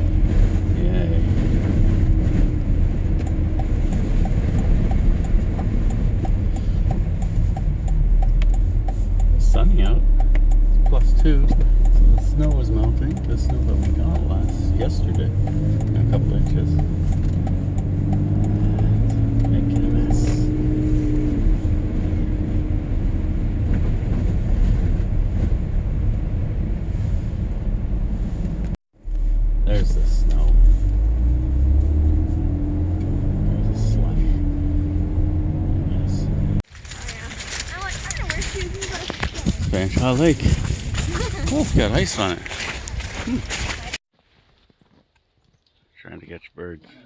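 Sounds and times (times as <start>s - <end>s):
engine and tyre rumble: 0.0s - 45.4s
light regular ticking: 3.1s - 20.5s.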